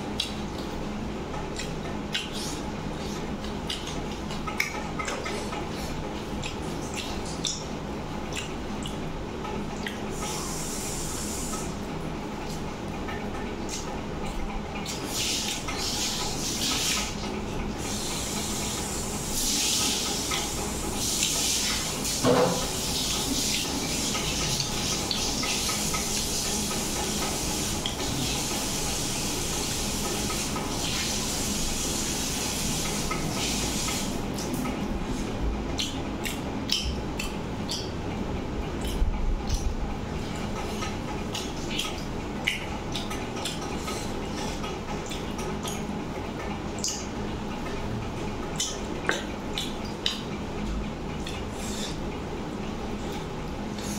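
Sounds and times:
sharp clicks and smacks: 0.0 - 5.7, 6.3 - 10.4, 12.5 - 16.0, 35.7 - 38.0, 38.7 - 47.8, 48.4 - 51.4
chewing: 0.1 - 10.6, 33.8 - 38.0, 38.6 - 50.4, 51.2 - 53.9.

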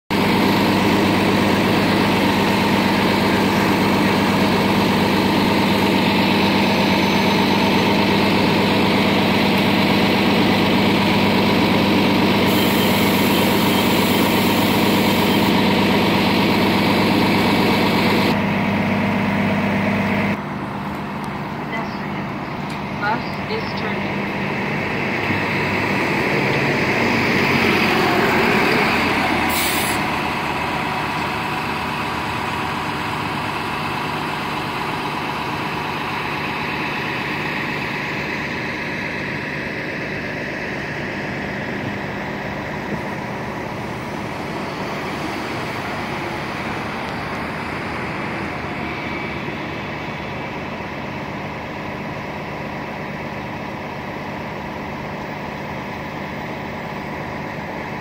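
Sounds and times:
bus driving away: 0.1 - 58.0
air brake hiss: 29.4 - 30.1.

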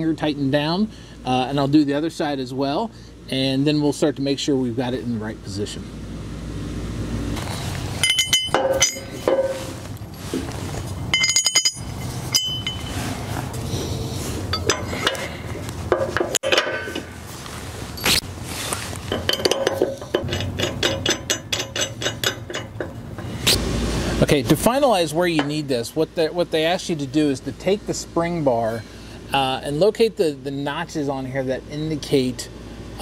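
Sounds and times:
metal hitch parts clinking: 8.0 - 13.6, 14.4 - 17.2, 19.0 - 23.6.

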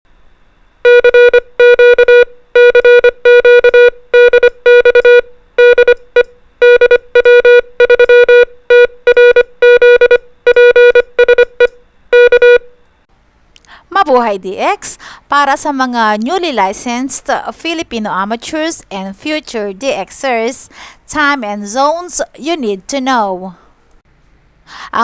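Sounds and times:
morse code beeps: 0.9 - 12.8.

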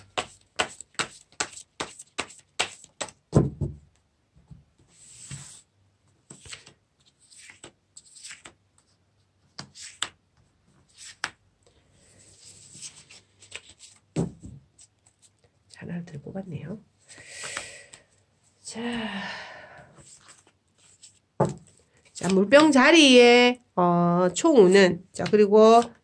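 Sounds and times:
cards sliding and rustling on cloth: 4.8 - 11.4, 12.0 - 14.2, 20.0 - 22.4.

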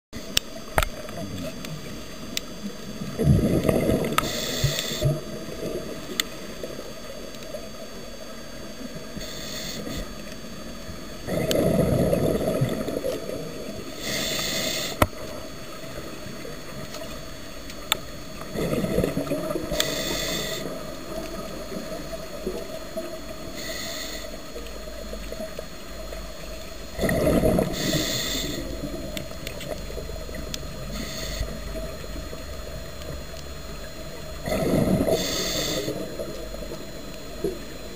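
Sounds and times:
bubbling exhaled air: 3.0 - 7.1, 11.2 - 16.9, 18.3 - 24.5, 26.9 - 32.7, 34.2 - 37.6.

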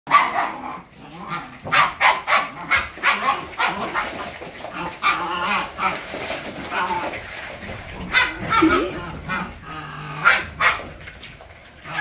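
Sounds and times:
dogs barking in a scuffle: 0.1 - 12.0.

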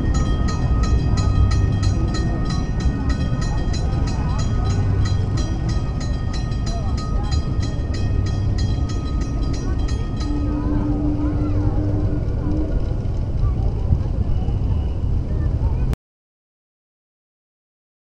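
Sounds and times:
crossing signal bell ringing: 0.0 - 12.8.

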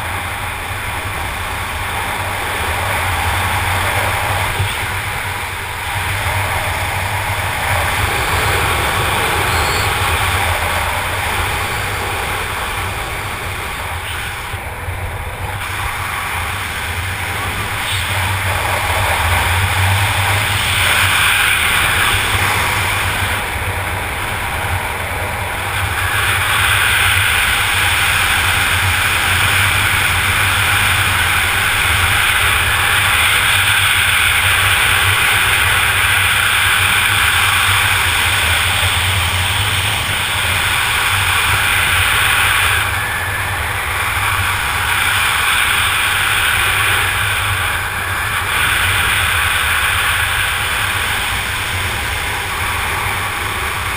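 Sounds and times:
wind buffeting microphone: 0.0 - 53.9
low rumble: 3.5 - 16.6.

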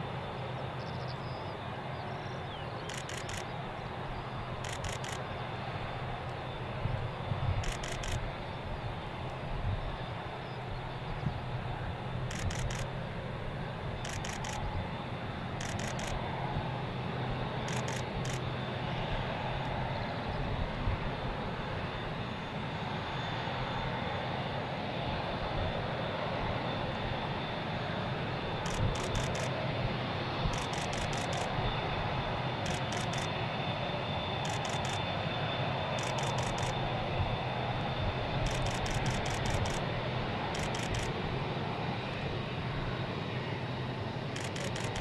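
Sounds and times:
jet engines rumbling: 0.0 - 45.0
sharp high clicks: 2.8 - 3.5, 4.6 - 5.3, 7.6 - 8.2, 12.3 - 12.9, 14.0 - 14.7, 15.6 - 16.2, 17.7 - 18.5, 28.6 - 29.6, 30.5 - 31.6, 32.6 - 33.4, 34.4 - 35.1, 36.0 - 36.8, 38.4 - 39.9, 40.5 - 41.2, 44.4 - 45.0.

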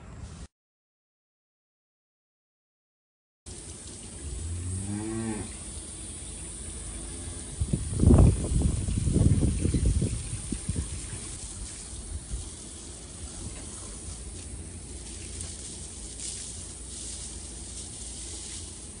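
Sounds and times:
garden hose spraying water: 3.5 - 19.0.

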